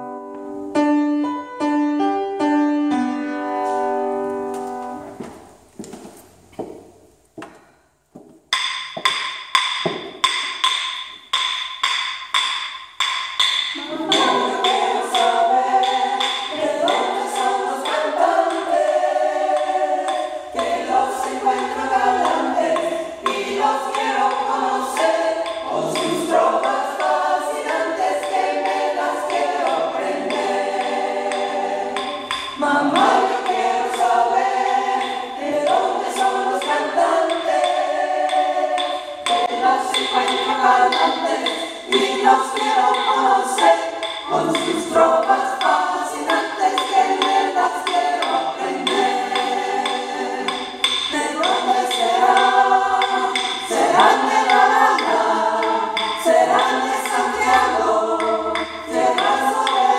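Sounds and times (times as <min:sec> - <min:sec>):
choir singing a cappella: 0:13.6 - 0:59.9.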